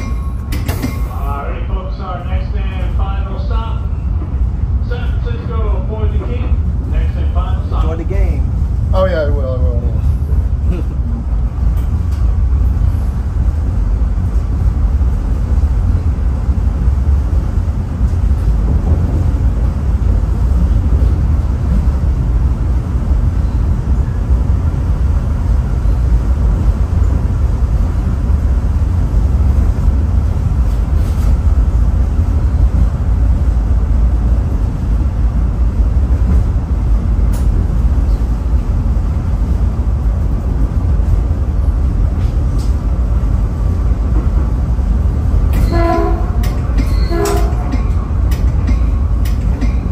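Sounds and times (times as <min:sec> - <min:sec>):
train wheels rumbling: 0:00.0 - 0:49.9.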